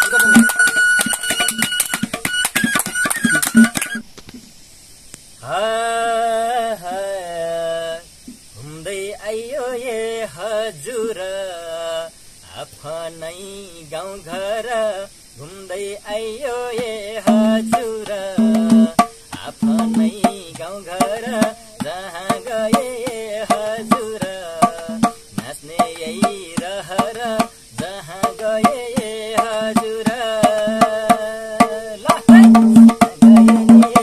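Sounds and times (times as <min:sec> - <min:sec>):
hand drum folk rhythm: 0:00.0 - 0:04.1, 0:16.6 - 0:34.0
bamboo flute: 0:00.0 - 0:04.3, 0:17.2 - 0:19.0, 0:29.0 - 0:34.0
man singing folk melody: 0:05.4 - 0:34.0.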